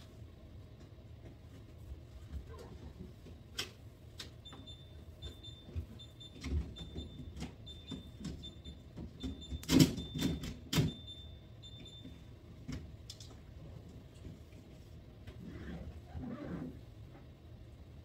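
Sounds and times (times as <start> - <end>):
refrigerator alarm beeping: 4.4 - 12.5.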